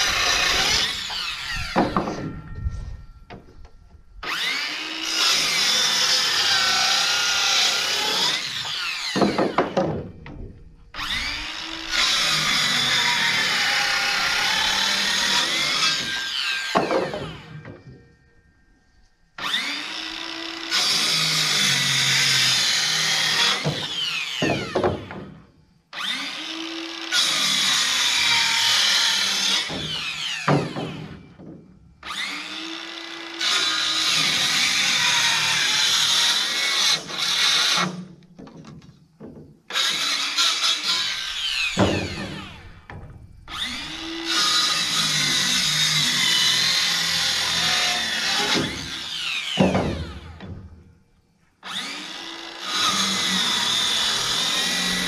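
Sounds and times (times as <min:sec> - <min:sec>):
power tool whining: 0:00.0 - 0:18.6, 0:19.4 - 0:31.4, 0:32.0 - 0:38.1, 0:39.2 - 0:50.8, 0:51.6 - 0:55.0.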